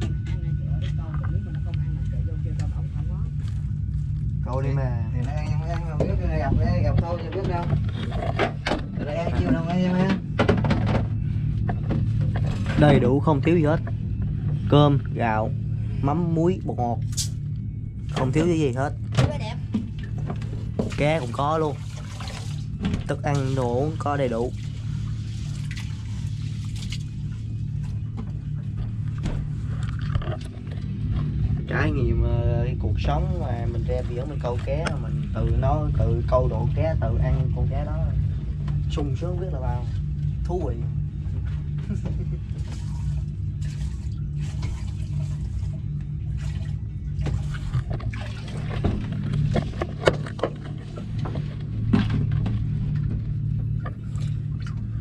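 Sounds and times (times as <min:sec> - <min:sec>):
boat engine humming: 0:00.0 - 0:55.0
water sloshing in a metal pot: 0:19.9 - 0:27.9, 0:42.5 - 0:52.5
water pouring from a jerrycan: 0:20.1 - 0:27.3, 0:42.5 - 0:52.2
rice washed in water pot: 0:20.8 - 0:27.3.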